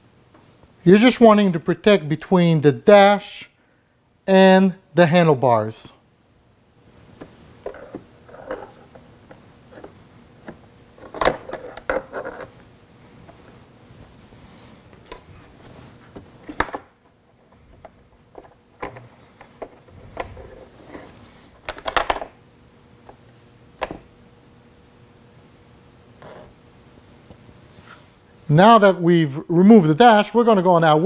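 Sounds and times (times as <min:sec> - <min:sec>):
plastic parts clicking and knocking: 0:21.7 - 0:22.3.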